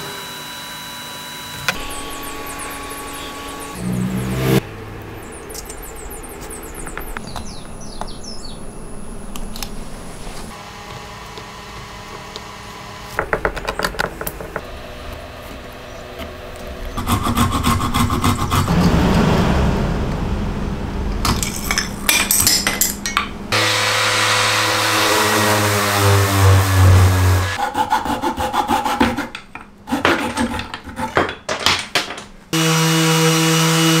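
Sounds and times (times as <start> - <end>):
orbital sander motor hum: 0.0 - 8.1, 23.6 - 27.6
pull saw cutting wood: 17.0 - 18.8, 23.6 - 31.2.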